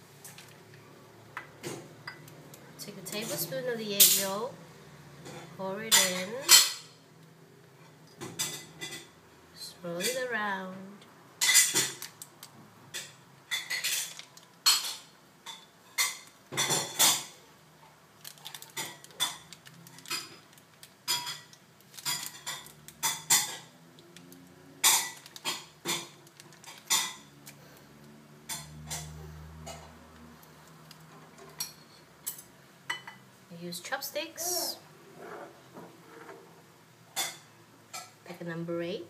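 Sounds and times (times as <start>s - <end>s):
kitchenware clinking on frying pan: 5.3s - 7.0s, 11.4s - 12.0s.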